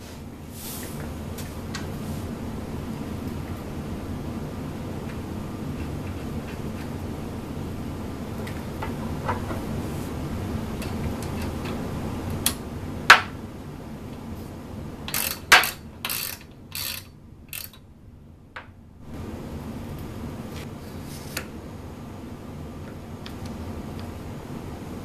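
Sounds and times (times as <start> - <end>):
ratchet wrench ratcheting: 15.1 - 17.8.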